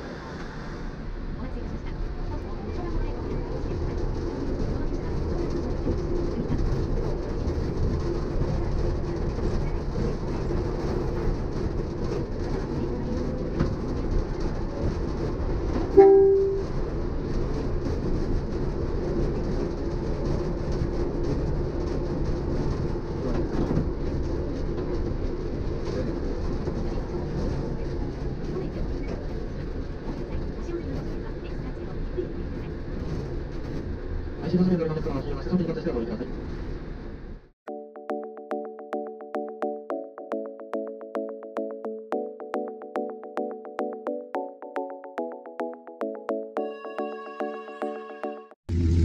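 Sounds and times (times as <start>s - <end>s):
monorail running noise: 0.0s - 37.4s
short horn note: 16.0s - 16.8s.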